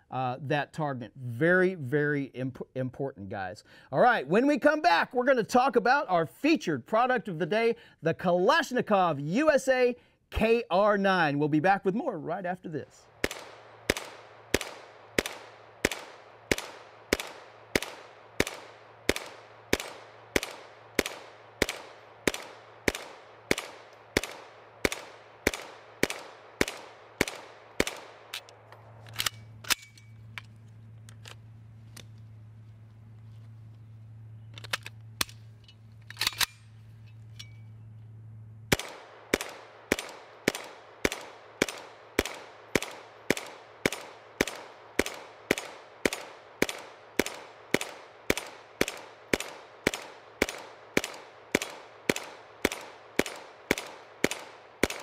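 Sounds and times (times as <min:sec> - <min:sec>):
rifle gunshots: 0:13.1 - 0:28.6, 0:38.7 - 0:55.0.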